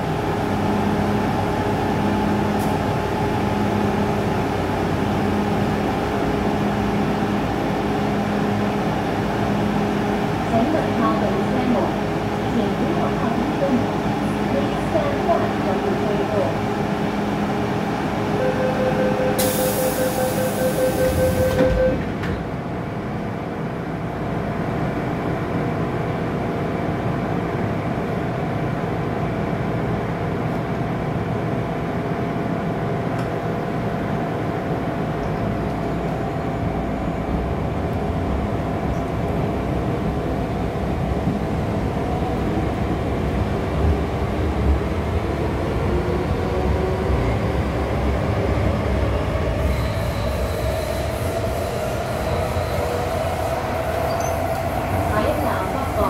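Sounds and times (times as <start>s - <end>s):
train wheels rumbling in tunnel: 0.0s - 56.0s
door-closing warning beeps: 18.4s - 22.4s, 53.9s - 54.6s
train doors hissing shut: 19.4s - 22.4s.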